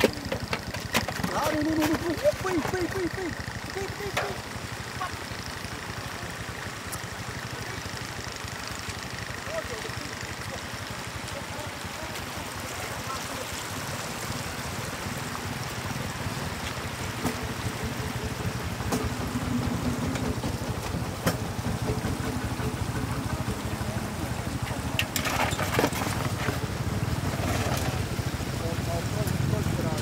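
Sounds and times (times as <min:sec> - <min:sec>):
sharp splashes and knocks: 0:00.0 - 0:03.2, 0:03.8 - 0:04.8, 0:10.7 - 0:23.0
floodwater running: 0:00.0 - 0:30.0.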